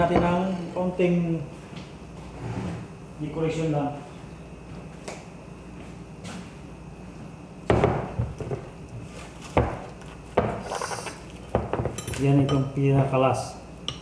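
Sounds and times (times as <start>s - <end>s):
scrape on counter: 2.3s - 2.9s.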